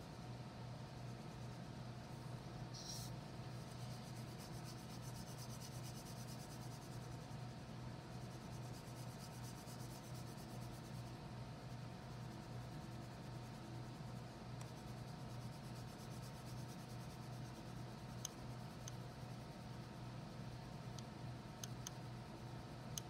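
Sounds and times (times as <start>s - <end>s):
steady low hum: 0.0s - 23.0s
wax crayon scribbling on paper: 2.8s - 7.3s, 8.2s - 11.0s, 14.7s - 17.7s.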